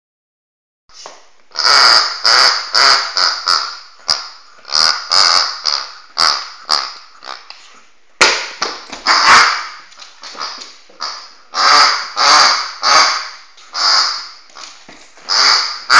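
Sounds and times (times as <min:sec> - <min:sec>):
squeaky dog toy: 0:01.5 - 0:07.5, 0:09.0 - 0:15.9
dog chewing a toy: 0:01.6 - 0:07.6.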